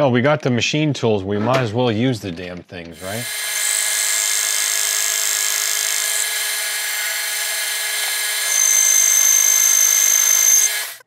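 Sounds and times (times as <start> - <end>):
metal lathe running: 3.0 - 11.0
high steady whine: 3.5 - 11.0.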